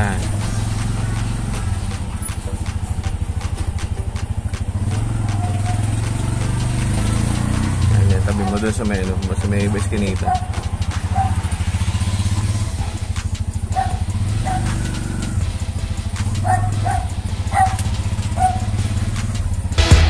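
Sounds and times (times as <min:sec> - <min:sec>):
motor tricycle engine pulsing: 0:00.0 - 0:19.8
short high yelps: 0:05.3 - 0:06.0, 0:11.1 - 0:11.4.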